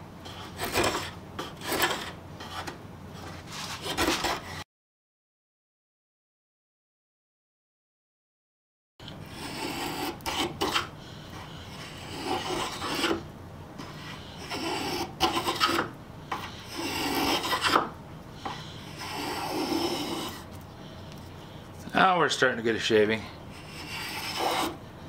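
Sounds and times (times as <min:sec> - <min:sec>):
spokeshave scraping wood: 0:00.2 - 0:04.6, 0:09.2 - 0:13.2, 0:13.8 - 0:20.6, 0:23.5 - 0:24.8.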